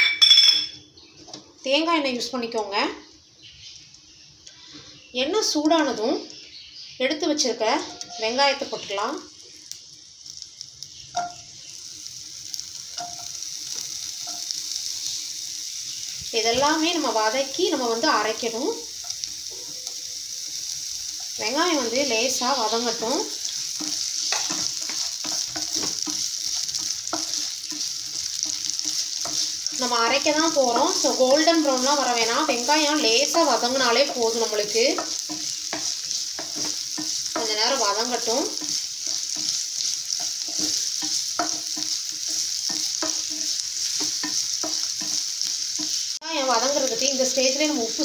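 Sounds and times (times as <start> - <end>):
onions sizzling in hot oil: 0.1 - 48.0
spatula scraping a pan: 7.8 - 8.6, 21.9 - 46.2.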